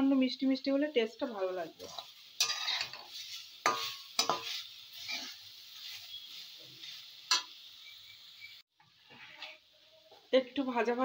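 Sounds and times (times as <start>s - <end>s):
food sizzling in oil: 0.0s - 11.0s
metal spatula scraping pan: 1.8s - 7.6s, 9.0s - 9.7s.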